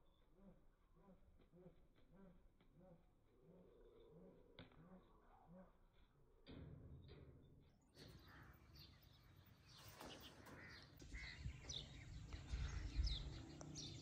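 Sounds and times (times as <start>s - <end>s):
faint bird calls: 8.0s - 14.0s
crows cawing: 10.4s - 13.0s.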